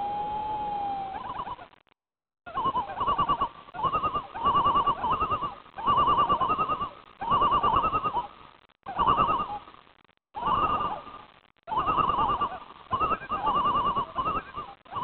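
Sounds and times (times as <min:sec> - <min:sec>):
animal quavering calls: 0:02.5 - 0:08.3, 0:10.4 - 0:15.0.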